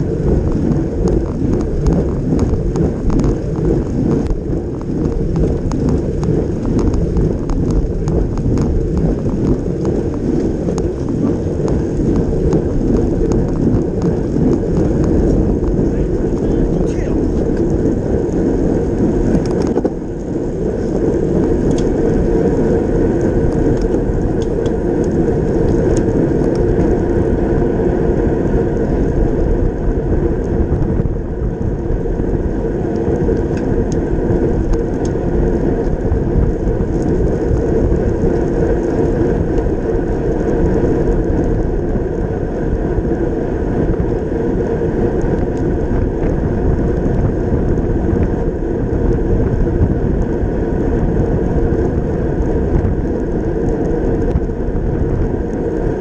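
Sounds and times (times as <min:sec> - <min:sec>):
tyres whirring on road: 0:00.0 - 0:56.0
wind rush on camera: 0:00.0 - 0:56.0.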